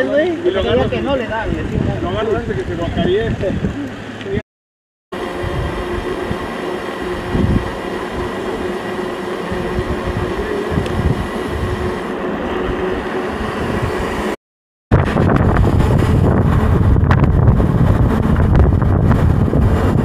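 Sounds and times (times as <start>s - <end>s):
wind buffeting microphone: 0.5s - 4.4s, 5.2s - 20.0s
bike tyres rolling on dirt: 5.2s - 14.3s
low hum: 5.2s - 20.0s.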